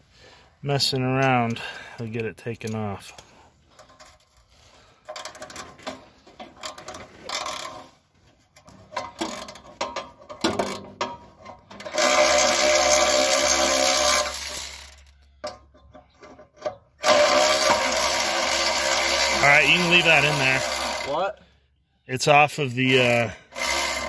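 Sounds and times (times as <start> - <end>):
metal clanks: 8.6 - 12.0
electric ratchet motor: 11.9 - 15.2, 17.0 - 21.2, 23.1 - 24.0.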